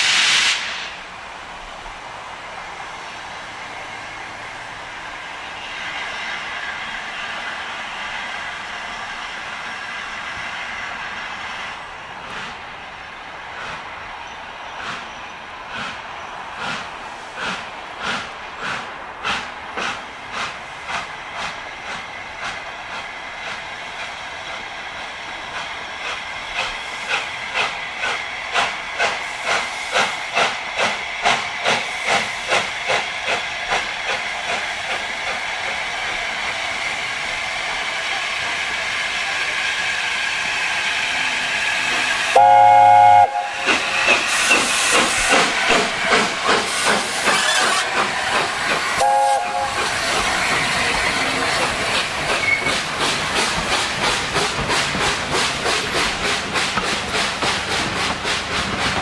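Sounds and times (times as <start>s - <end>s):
hissing steam: 0.0s - 59.0s
steam locomotive chuffing: 14.7s - 59.0s
train whistle blast: 42.2s - 44.6s, 49.0s - 49.9s.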